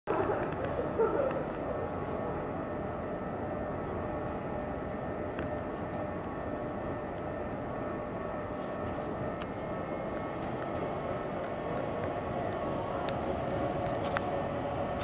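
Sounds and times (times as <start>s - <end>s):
electric train rumbling: 0.1s - 15.0s.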